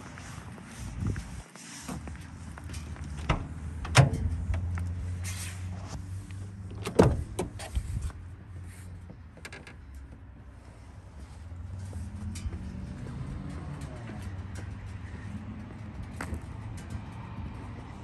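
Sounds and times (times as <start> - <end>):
metallic latch click: 3.2 - 4.7
van door clunks and knocks: 3.2 - 4.7, 6.7 - 7.7.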